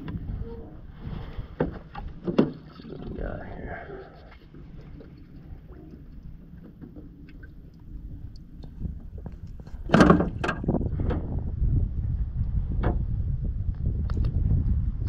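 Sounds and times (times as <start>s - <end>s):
low microphone rumble: 0.0s - 2.2s, 2.8s - 15.0s
knocks and clatters in a boat: 1.2s - 3.2s, 4.3s - 11.4s, 12.5s - 14.5s.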